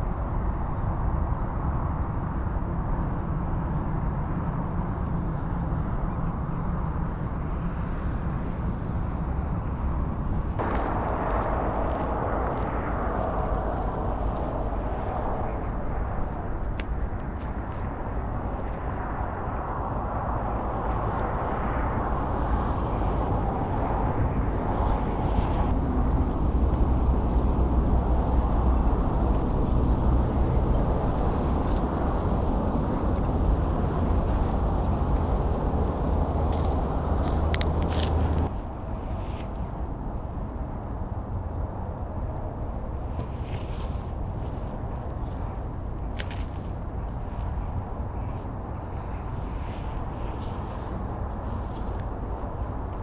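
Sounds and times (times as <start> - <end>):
low rumbling outdoor noise: 0.0 - 53.0
wind on microphone: 0.0 - 53.0
footsteps on gravel: 10.6 - 15.2, 34.4 - 38.5.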